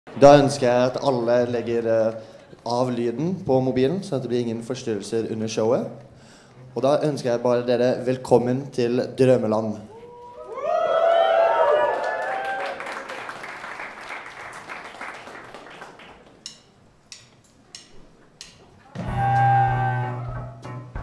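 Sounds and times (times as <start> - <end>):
audience applause and cheering: 10.0 - 16.3, 19.0 - 20.5.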